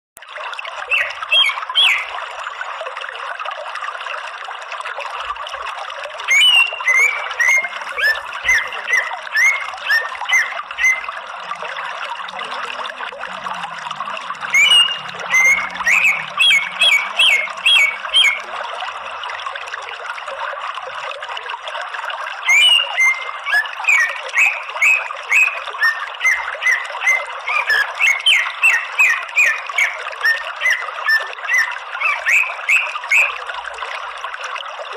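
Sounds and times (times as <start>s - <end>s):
bird singing sharp notes: 14.5s - 18.4s.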